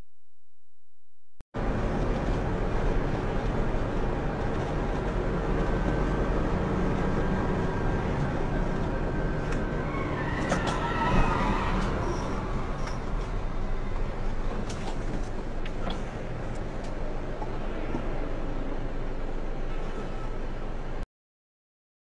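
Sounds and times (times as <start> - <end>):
truck engine and road noise: 1.6 - 21.0.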